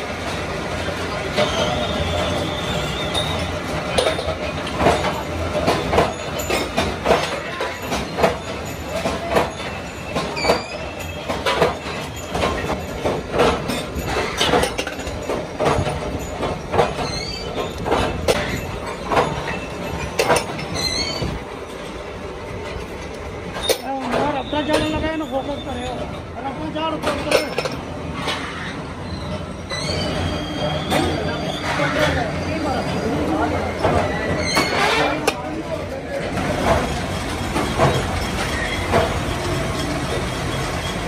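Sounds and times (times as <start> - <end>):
high metal squeals: 1.4 - 3.6, 20.7 - 21.4, 24.3 - 26.1, 28.5 - 33.2, 34.2 - 35.3.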